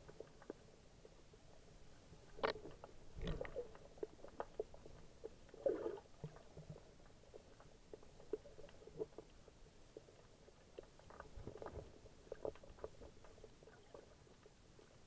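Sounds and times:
underwater clicks and pops: 2.3 - 3.6.

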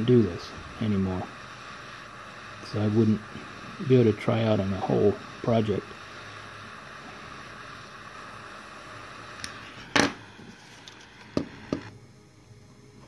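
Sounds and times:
torch lighter flame hissing: 0.0 - 13.0
lighter knocking on bench: 9.9 - 10.2, 11.4 - 11.9.

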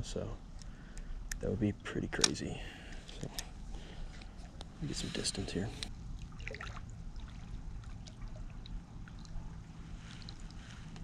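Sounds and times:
low steady rumble: 0.0 - 11.0
water drips and splashes: 5.9 - 11.0.

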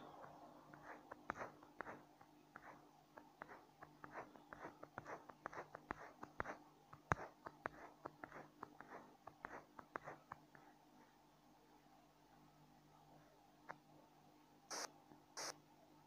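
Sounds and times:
low room hum: 0.0 - 16.0
small clicks and taps: 0.2 - 10.7.

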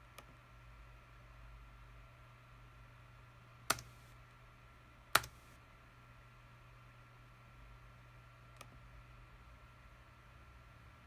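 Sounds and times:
mouse button clicking: 3.7 - 4.0, 5.2 - 5.4.

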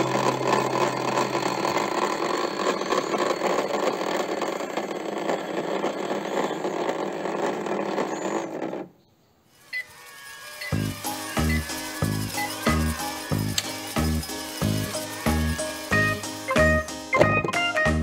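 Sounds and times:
toy motor buzzing rattle: 0.0 - 17.2.

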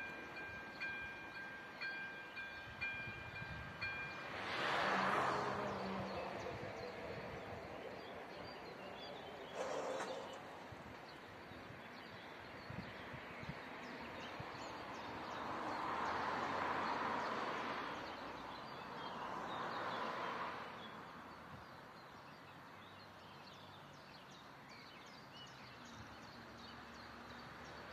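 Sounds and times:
small birds chirping: 8.0 - 13.0.

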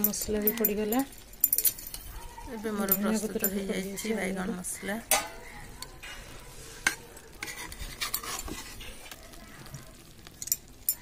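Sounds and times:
spatula clinking against pan: 5.1 - 6.3
spatula scraping through curry: 5.3 - 10.1.

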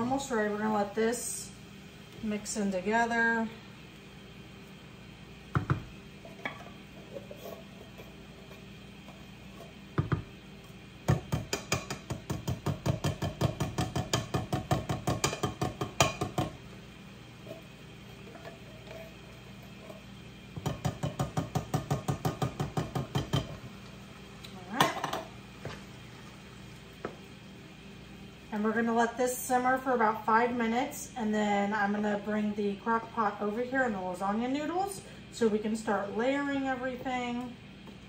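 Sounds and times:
wooden spoon knocking a pan: 5.5 - 5.9, 10.0 - 10.3, 11.1 - 16.6, 20.6 - 23.6.

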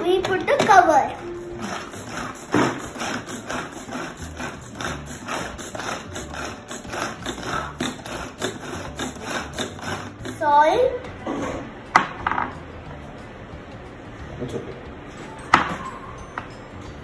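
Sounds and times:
food chopper whirring clatter: 1.5 - 10.5.

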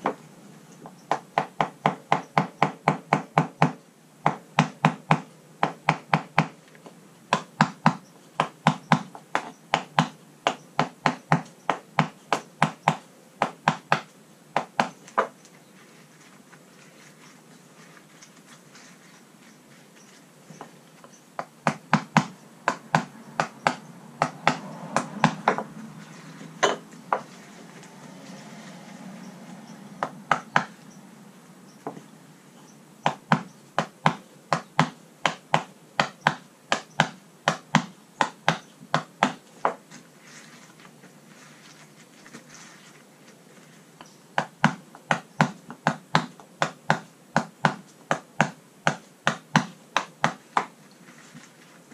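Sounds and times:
soft rubbing: 15.0 - 21.3, 24.6 - 30.0, 39.8 - 44.0, 50.4 - 51.9.

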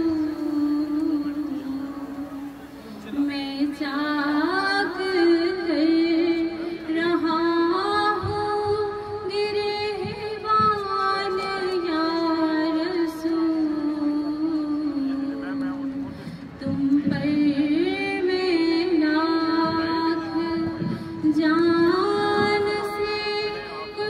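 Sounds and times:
woman singing long held notes: 0.0 - 2.5.

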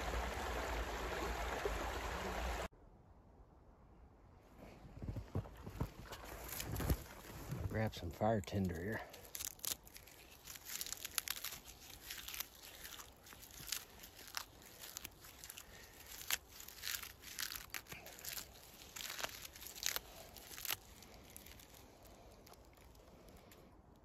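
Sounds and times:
bark tearing and crackling: 8.2 - 24.0.

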